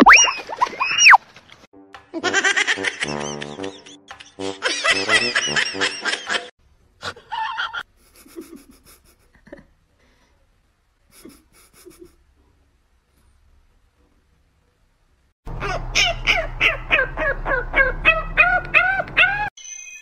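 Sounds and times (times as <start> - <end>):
laughter: 2.2 - 6.5, 7.1 - 9.8, 11.1 - 12.2.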